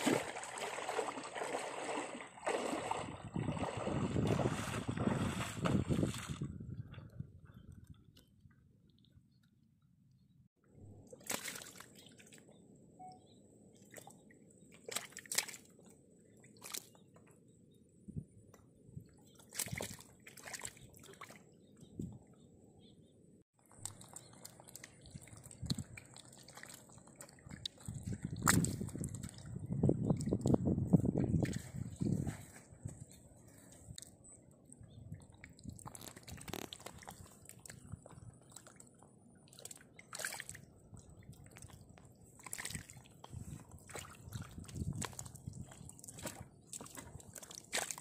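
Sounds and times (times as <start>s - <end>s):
loud water splash: 0.0s - 6.2s
fish squelching in mud: 14.7s - 15.9s, 23.7s - 30.5s, 35.2s - 48.0s.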